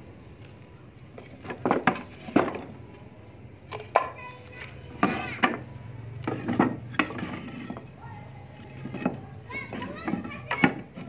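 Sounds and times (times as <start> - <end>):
wood pieces clacking and knocking: 1.1 - 3.0, 3.7 - 8.0, 8.6 - 11.0.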